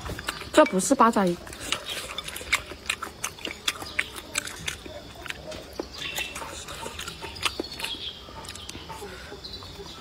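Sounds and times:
person chewing with mouth clicks: 0:01.4 - 0:09.2.

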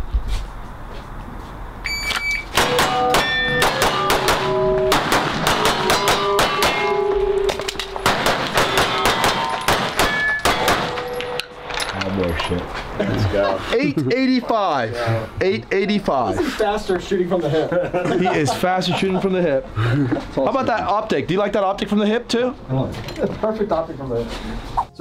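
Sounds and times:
shot timer beep: 0:01.8 - 0:03.5
pistol shots: 0:02.5 - 0:11.4
steel targets ringing: 0:02.5 - 0:12.0.

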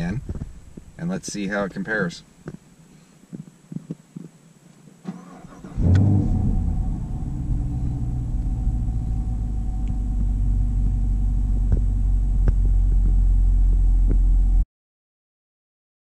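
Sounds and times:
car engine idling: 0:05.3 - 0:14.6.

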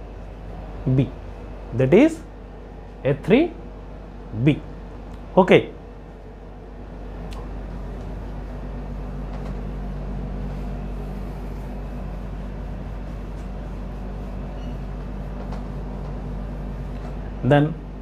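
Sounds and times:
low steady hum: 0:00.0 - 0:18.0
duster rubbing on whiteboard: 0:07.8 - 0:17.2.

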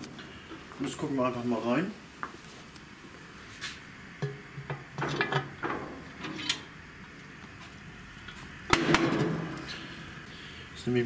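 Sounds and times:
metal lid clanking and scraping: 0:04.2 - 0:06.7.

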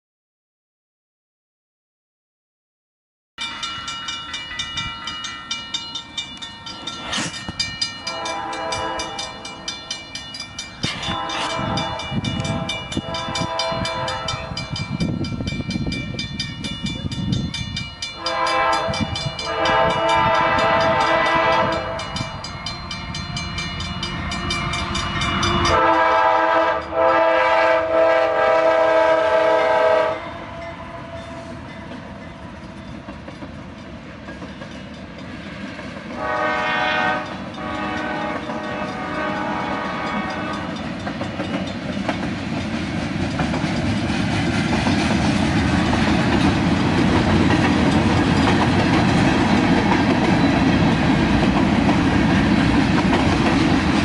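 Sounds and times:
crossing bell dinging: 0:03.4 - 0:28.2, 0:30.6 - 0:35.6, 0:36.2 - 0:42.3, 0:46.4 - 0:51.6
train rolling rumble: 0:03.4 - 0:54.0
locomotive air horn blasts: 0:08.0 - 0:09.6, 0:11.0 - 0:14.7, 0:18.2 - 0:22.2, 0:24.2 - 0:31.6, 0:36.2 - 0:40.8.

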